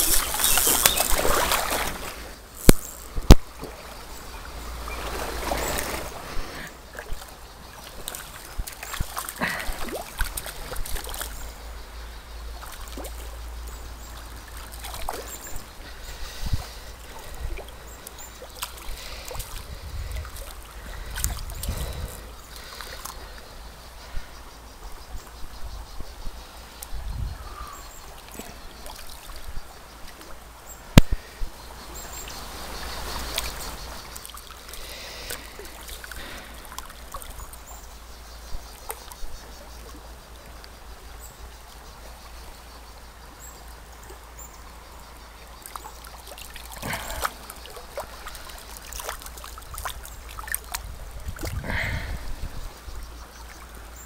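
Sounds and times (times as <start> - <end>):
fishing rod and reel clicks: 0.0 - 3.4
stream running over stones: 0.0 - 24.1, 27.6 - 54.0.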